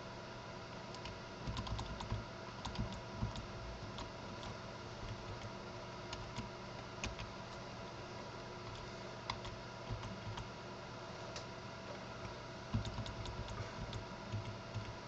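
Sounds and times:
faint electrical hum: 0:00.0 - 0:15.0
keyboard keys tapping: 0:01.0 - 0:05.5, 0:12.2 - 0:15.0.

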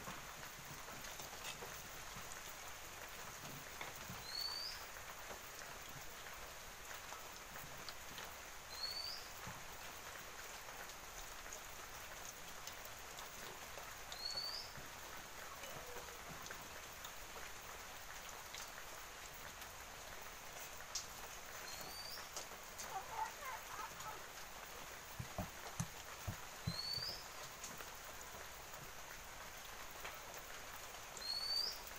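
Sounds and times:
sweets deep-frying in oil: 0:00.0 - 0:31.9
bird chirping: 0:21.6 - 0:24.2, 0:26.6 - 0:27.4.

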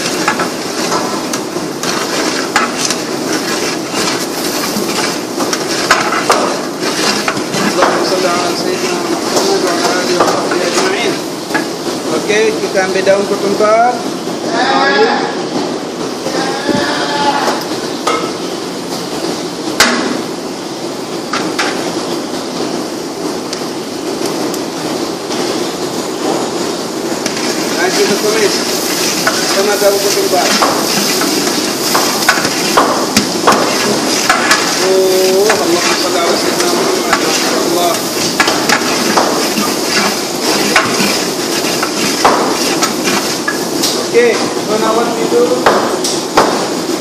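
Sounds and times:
metal ladle clanking on pot: 0:00.0 - 0:08.2, 0:30.4 - 0:44.0
garlic and onion sizzling: 0:00.0 - 0:15.5, 0:16.2 - 0:47.0.

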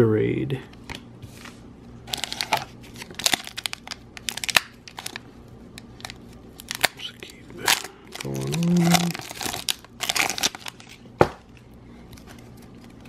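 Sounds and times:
foil wrapper crinkling and tearing: 0:02.1 - 0:05.2, 0:06.0 - 0:11.1.

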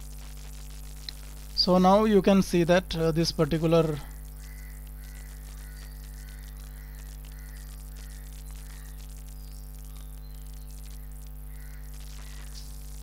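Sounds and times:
mains hum: 0:00.0 - 0:13.0
faint ticks: 0:01.0 - 0:01.3, 0:04.4 - 0:09.3.

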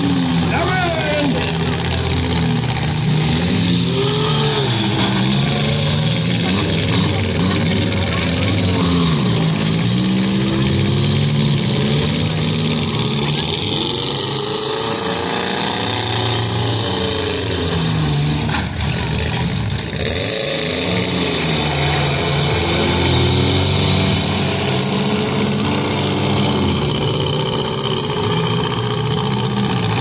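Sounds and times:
car engines revving: 0:00.0 - 0:30.0.

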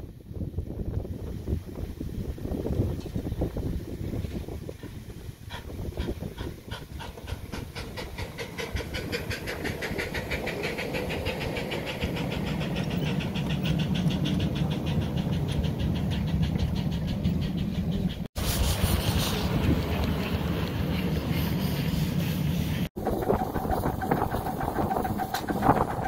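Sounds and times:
steam locomotive exhaust chuffing: 0:00.3 - 0:26.0
carriages rumbling past: 0:06.9 - 0:18.3.

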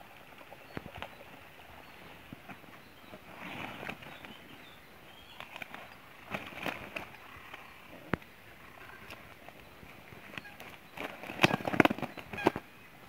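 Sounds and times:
fabric sack rustling and flapping: 0:05.4 - 0:07.6, 0:10.1 - 0:12.7.

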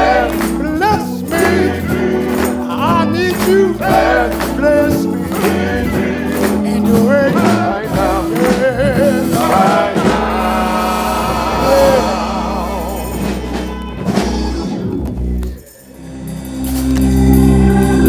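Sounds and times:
men's choir singing: 0:00.0 - 0:13.7
lead voice with vibrato: 0:00.0 - 0:14.4
low instrumental backing: 0:00.0 - 0:18.0.

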